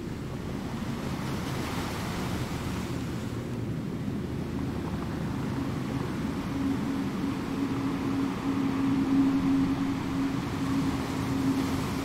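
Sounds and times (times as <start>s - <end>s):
distant engine hum: 0.0s - 12.0s
low wind rumble: 0.0s - 12.0s.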